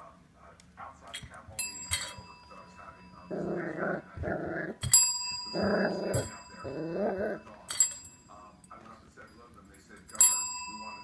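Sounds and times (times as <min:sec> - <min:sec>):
desk bell ringing: 0:01.6 - 0:04.0, 0:04.8 - 0:08.8, 0:10.1 - 0:11.0
puppy growling: 0:03.3 - 0:07.5.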